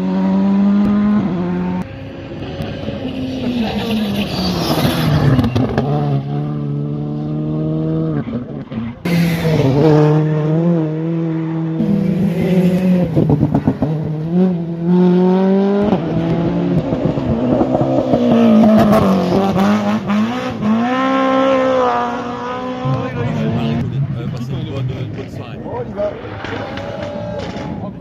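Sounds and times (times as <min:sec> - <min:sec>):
rally car engines revving: 0:00.0 - 0:28.0.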